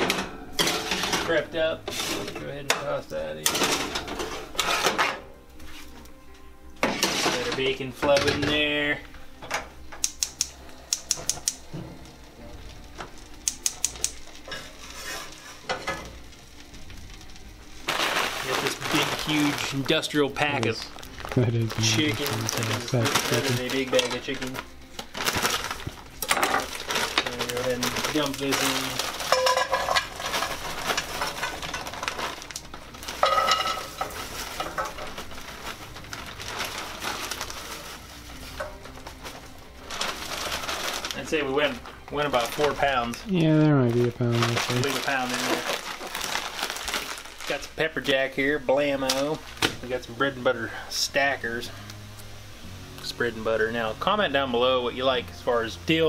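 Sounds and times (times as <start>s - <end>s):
gas stove igniter clicking: 9.9s - 11.6s, 13.4s - 14.3s
chicken sizzling in frying pan: 10.0s - 43.2s.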